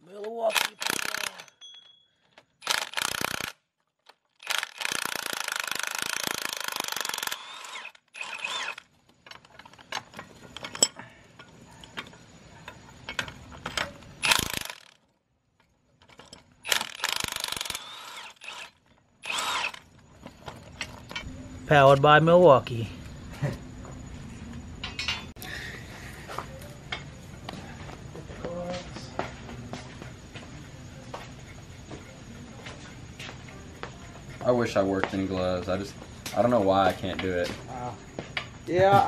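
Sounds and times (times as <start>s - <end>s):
metal clicks and clinks: 0.2s - 21.3s, 24.8s - 25.4s.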